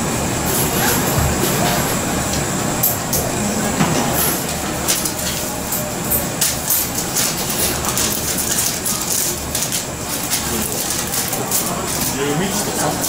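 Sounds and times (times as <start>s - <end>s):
paper crinkling: 7.0s - 13.0s.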